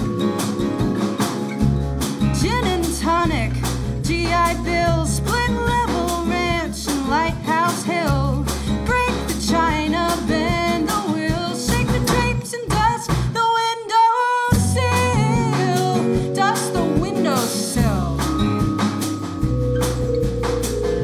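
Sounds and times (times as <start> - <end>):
acoustic guitar: 0.0 - 13.4, 14.5 - 21.0
drum kit: 0.0 - 13.6, 14.5 - 21.0
bass: 0.0 - 21.0
woman singing: 2.3 - 18.6
vibraphone: 14.6 - 21.0.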